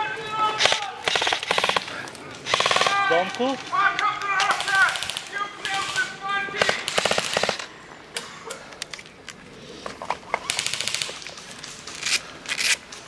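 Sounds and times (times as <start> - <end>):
sharp cracks: 0.5 - 9.0, 10.2 - 13.0
airsoft rifle firing: 0.6 - 3.3, 4.4 - 7.7, 10.4 - 11.2.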